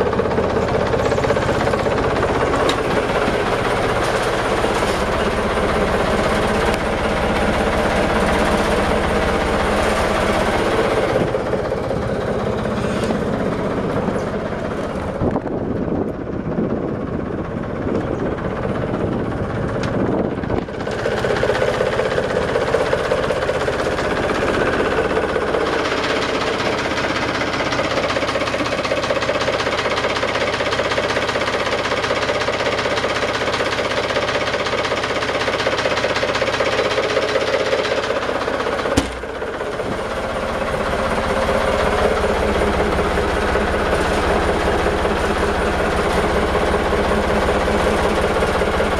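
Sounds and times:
diesel engine idling: 0.0 - 48.9
sharp knock: 39.0 - 39.3.

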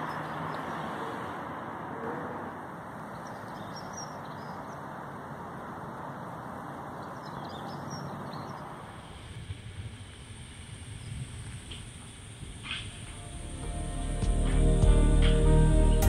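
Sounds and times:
steady rushing noise: 8.2 - 16.0.

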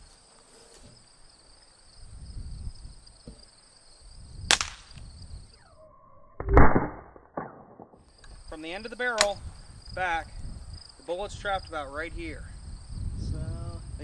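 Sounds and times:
insects chirping: 0.0 - 6.4, 7.9 - 14.0
dull gunshot bang: 4.5 - 4.9
pistol sharp pop: 4.5 - 5.0.

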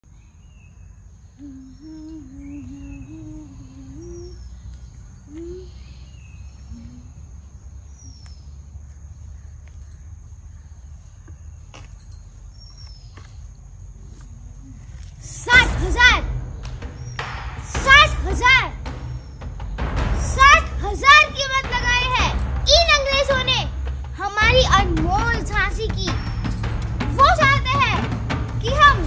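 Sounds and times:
faint wavering voice: 1.4 - 4.5, 5.3 - 5.9, 6.7 - 7.3
low rumble: 13.8 - 29.0.

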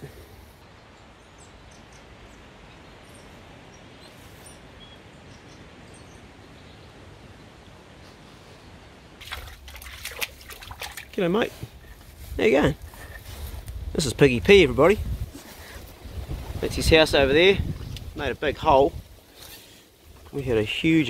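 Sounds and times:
background hiss: 0.0 - 21.0
faint bird chirps: 0.6 - 8.8.

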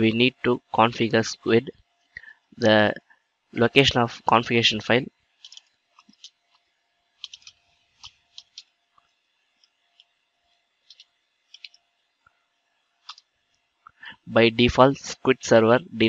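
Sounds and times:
faint steady hum: 0.0 - 16.0
keyboard keystrokes: 7.2 - 8.7, 10.9 - 11.8.

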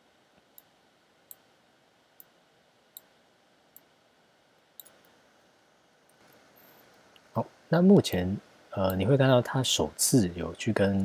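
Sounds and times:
computer mouse clicking: 4.8 - 5.2.

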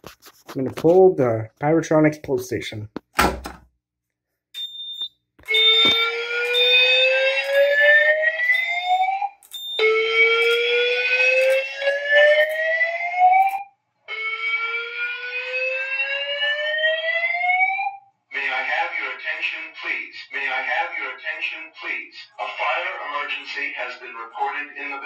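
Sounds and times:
short high beep: 4.6 - 6.1
fire alarm whoop tone: 4.6 - 18.1.

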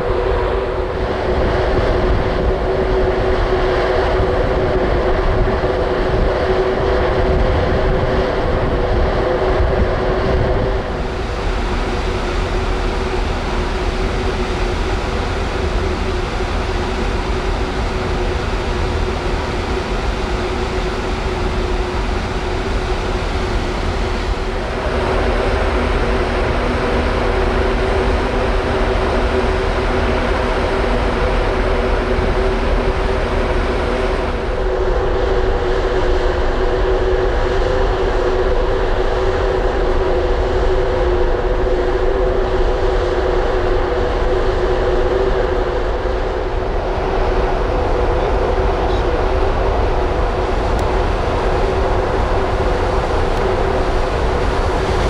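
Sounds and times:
ship engines humming: 0.0 - 55.0
wind and water rumble: 0.0 - 55.0.

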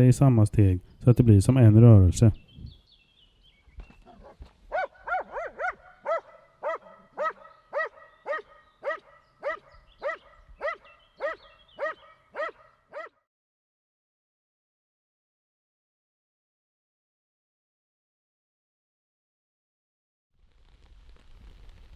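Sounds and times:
dog barking: 4.1 - 13.2.

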